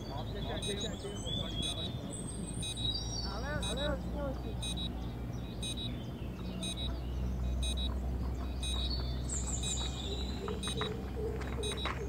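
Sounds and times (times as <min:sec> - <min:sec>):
short high electronic beeps: 0:01.6 - 0:02.9, 0:04.6 - 0:04.9, 0:05.6 - 0:05.9, 0:06.6 - 0:06.9, 0:07.6 - 0:07.9, 0:08.6 - 0:08.9.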